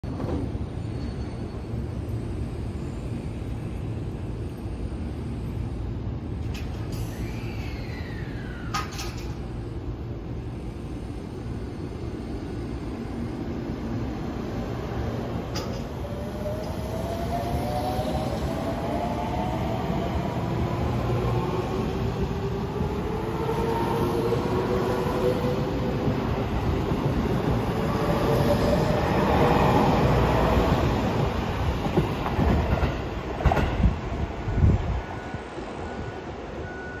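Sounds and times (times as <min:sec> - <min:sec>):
train cars rumbling: 0:14.7 - 0:35.3.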